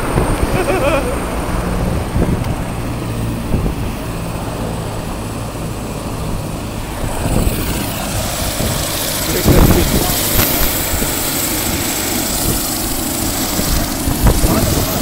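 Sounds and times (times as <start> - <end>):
helicopter drone: 0.0 - 15.0
high whine: 0.0 - 15.0.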